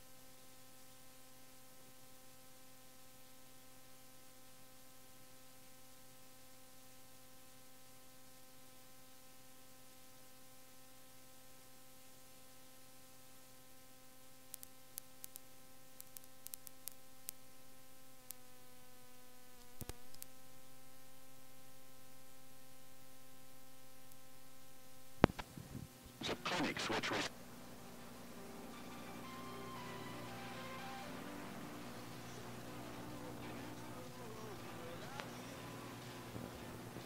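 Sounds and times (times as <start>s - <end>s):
electrical hum: 0.0s - 37.0s
tape hiss: 0.0s - 37.0s
sharp clicks: 16.0s - 17.4s.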